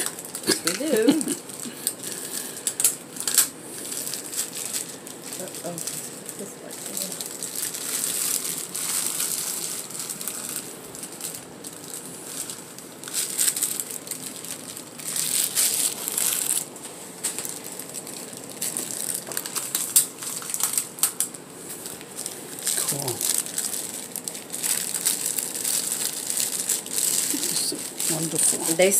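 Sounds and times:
plastic bags crinkling: 0:00.0 - 0:28.9.

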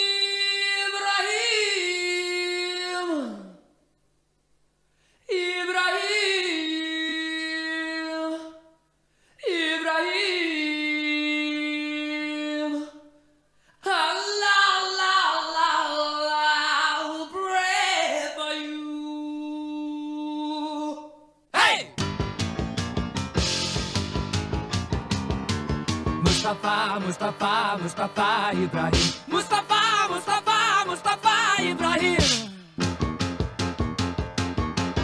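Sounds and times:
person singing long notes: 0:26.2 - 0:32.9.

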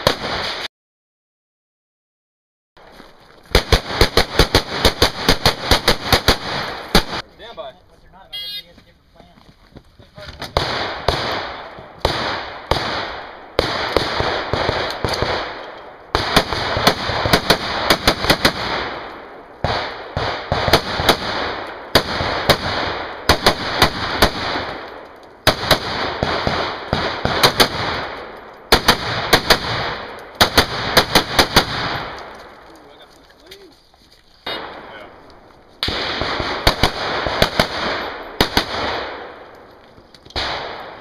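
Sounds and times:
rifle shots echoing: 0:00.0 - 0:00.7, 0:03.5 - 0:07.3, 0:10.4 - 0:32.7, 0:34.4 - 0:39.6, 0:40.3 - 0:41.0.

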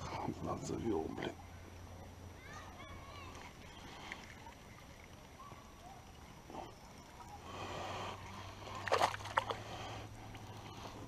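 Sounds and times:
fish thrashing and splashing: 0:08.5 - 0:11.0.

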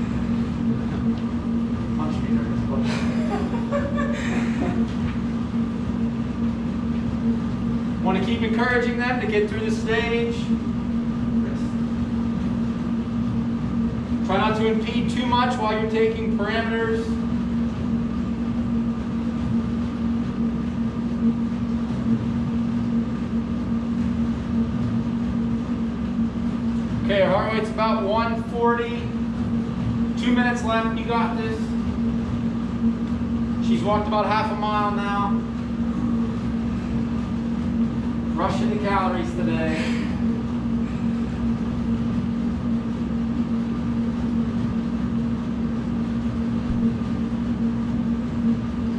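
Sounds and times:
treadmill motor hum: 0:00.0 - 0:48.9
footsteps on treadmill belt: 0:03.6 - 0:08.8, 0:29.1 - 0:39.4.

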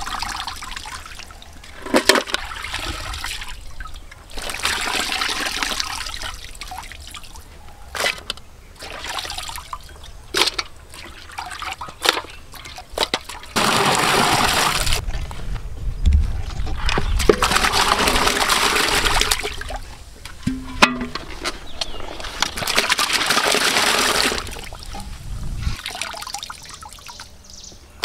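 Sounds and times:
splashes in bucket of water: 0:16.7 - 0:19.8, 0:22.5 - 0:25.0.

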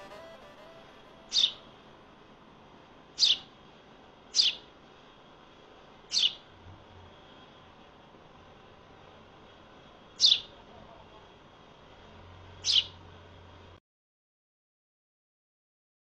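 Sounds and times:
sparrow chirping: 0:01.2 - 0:01.7, 0:03.2 - 0:03.5, 0:04.3 - 0:04.7, 0:06.1 - 0:06.5, 0:10.2 - 0:10.5, 0:12.6 - 0:13.0.

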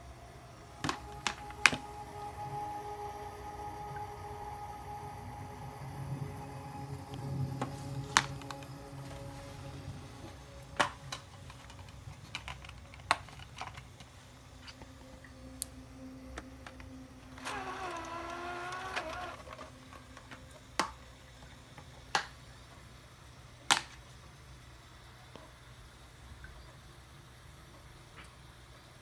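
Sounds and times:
disc spinning up whine: 0:00.0 - 0:12.5, 0:15.1 - 0:20.6.

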